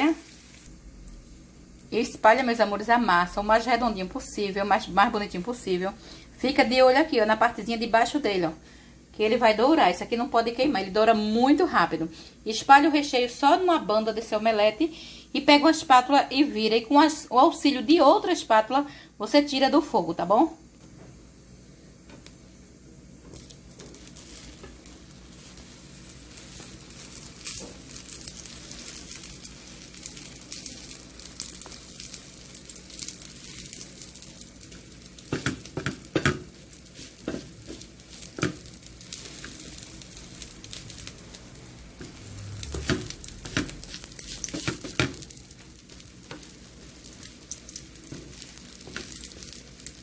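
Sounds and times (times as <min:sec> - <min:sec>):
omelette sizzling in oil: 0:00.0 - 0:08.6, 0:21.1 - 0:50.0
spatula taps on pan: 0:35.3 - 0:36.5.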